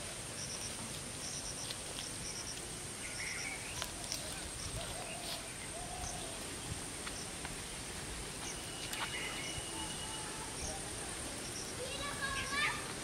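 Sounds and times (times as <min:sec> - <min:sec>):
high insect drone: 0:00.0 - 0:13.0
bird chirps: 0:08.4 - 0:11.8.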